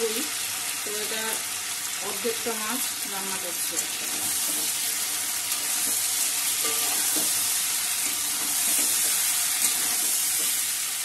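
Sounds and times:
food sizzling in hot oil: 0:00.0 - 0:11.0
metal spatula scraping pan: 0:04.0 - 0:10.6.

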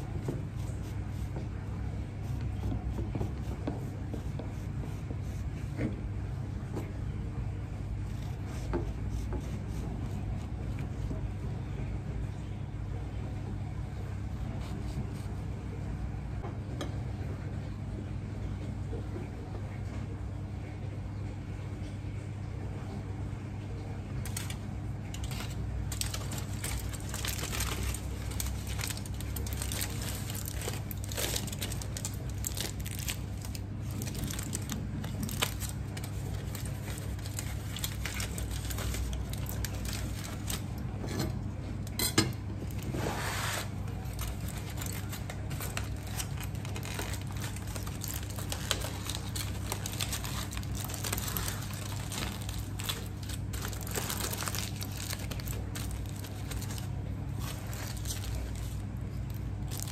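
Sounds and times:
steady low hum: 0:00.0 - 0:59.9
rustling and crinkling handling noises: 0:23.8 - 0:59.9.

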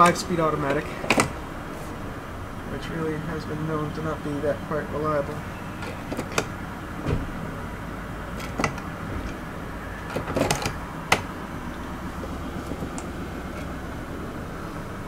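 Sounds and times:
sharp clicks and knocks: 0:00.0 - 0:01.4, 0:05.8 - 0:07.4, 0:08.3 - 0:09.4, 0:10.0 - 0:11.4, 0:12.1 - 0:13.8
car engine idling: 0:00.0 - 0:15.0.

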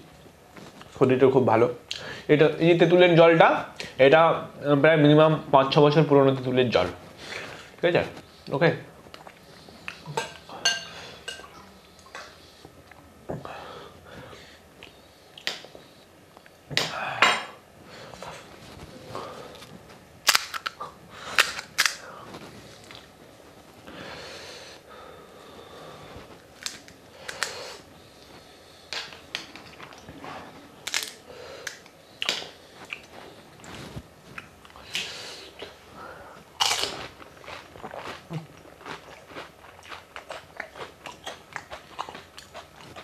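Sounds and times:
crisp shells cracking: 0:20.2 - 0:22.0, 0:26.5 - 0:27.6, 0:30.8 - 0:32.4.

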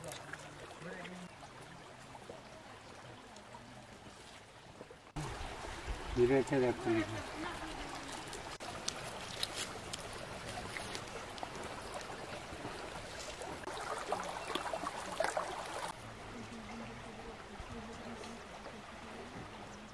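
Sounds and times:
stream flowing: 0:00.0 - 0:19.9.

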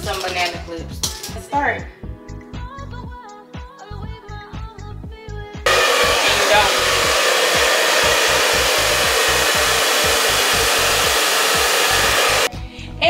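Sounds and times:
hair dryer blowing: 0:05.7 - 0:12.5.

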